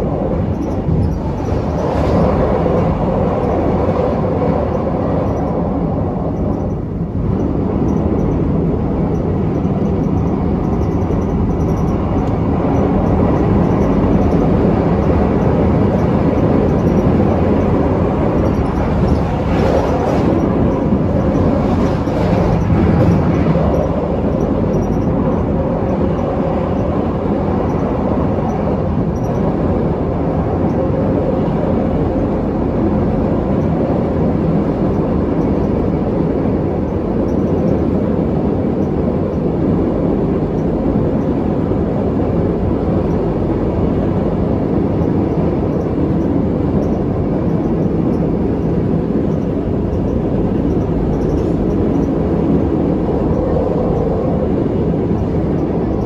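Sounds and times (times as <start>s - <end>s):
train wheels rumbling on rails: 0.0s - 56.0s
faint rail clacks: 6.2s - 29.5s, 45.0s - 54.2s.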